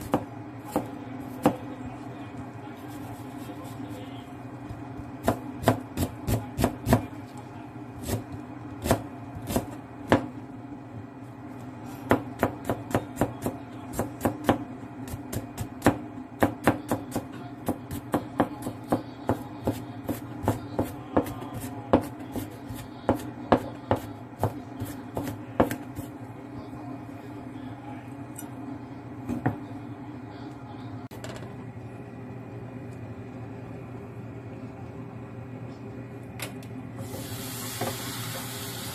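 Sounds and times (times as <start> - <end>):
knife chopping on cutting board: 0.0 - 1.7, 4.7 - 7.1, 8.0 - 10.3, 12.0 - 26.1.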